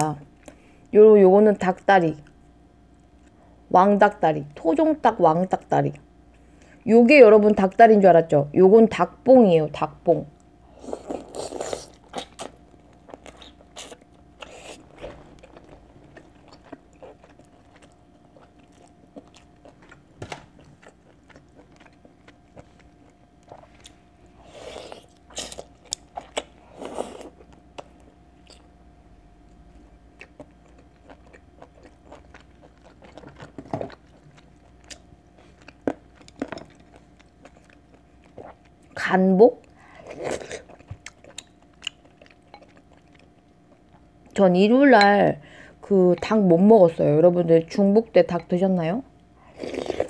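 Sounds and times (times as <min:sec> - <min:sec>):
biting and chewing: 0:11.0 - 0:28.7, 0:29.5 - 0:39.0.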